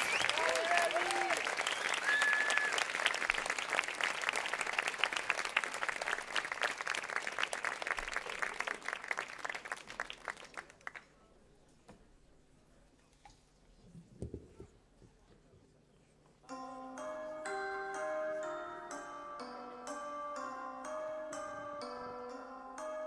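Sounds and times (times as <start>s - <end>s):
audience applauding: 0.0s - 11.1s.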